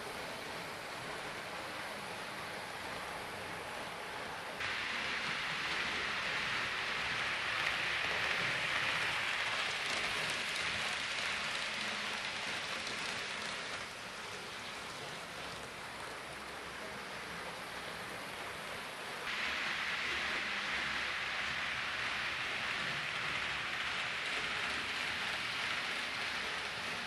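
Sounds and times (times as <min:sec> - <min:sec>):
model train running on track: 0:00.0 - 0:27.0.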